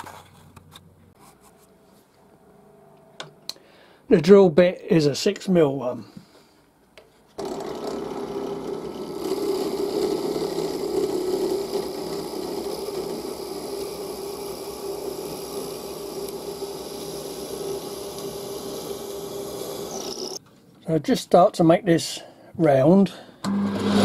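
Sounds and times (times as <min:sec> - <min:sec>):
bench drill motor hum: 0:07.4 - 0:20.4
drill bit boring wood: 0:07.4 - 0:20.4.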